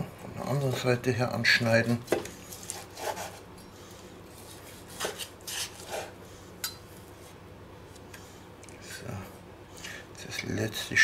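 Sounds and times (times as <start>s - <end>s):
knife sawing through meat crust: 2.5s - 3.5s, 4.4s - 6.2s.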